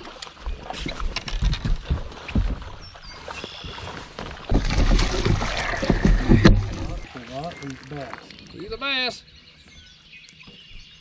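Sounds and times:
fish splashing at water surface: 3.4s - 8.4s.

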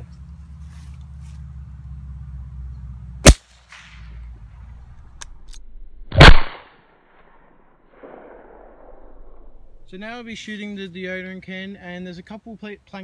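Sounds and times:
sharp gunshots: 3.2s - 4.1s, 6.1s - 9.6s.

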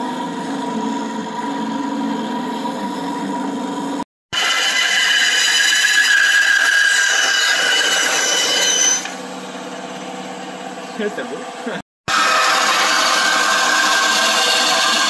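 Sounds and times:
bandsaw cutting wood: 4.3s - 9.2s, 12.1s - 15.0s.

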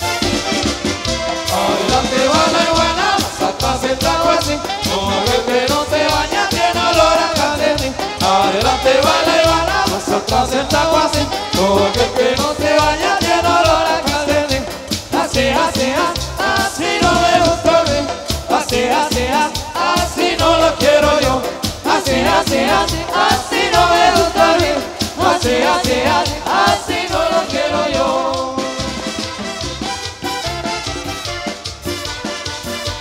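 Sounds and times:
latin dance band playing: 0.0s - 33.0s.

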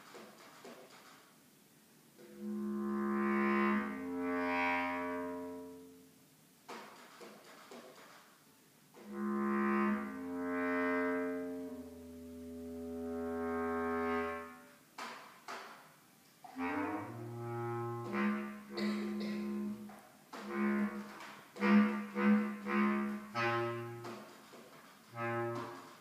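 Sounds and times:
bass clarinet playing: 2.2s - 6.2s, 9.0s - 14.7s, 16.5s - 24.2s, 25.1s - 26.0s.

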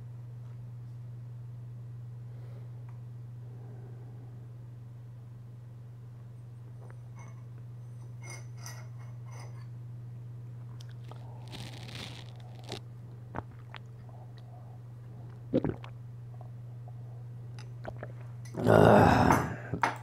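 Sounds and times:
low electrical hum: 0.0s - 20.0s
short crunching noises: 10.8s - 13.9s.

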